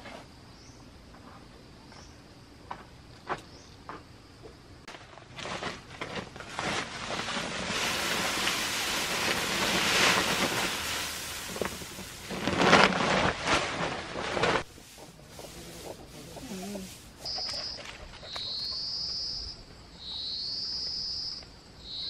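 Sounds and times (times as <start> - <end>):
rice husks pouring: 5.3 - 17.3.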